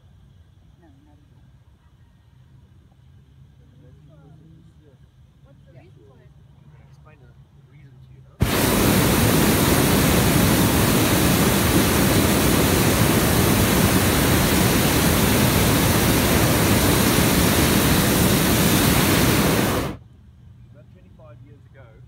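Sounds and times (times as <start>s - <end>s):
propane burner firing: 8.4s - 20.0s.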